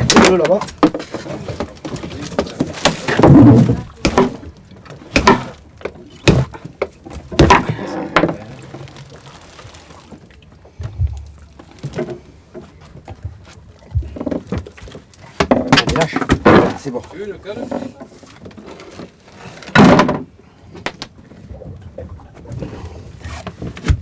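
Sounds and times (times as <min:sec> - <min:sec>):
knocks and thumps on boat deck: 0:00.0 - 0:08.6, 0:11.8 - 0:17.1, 0:19.7 - 0:21.7, 0:23.4 - 0:24.0.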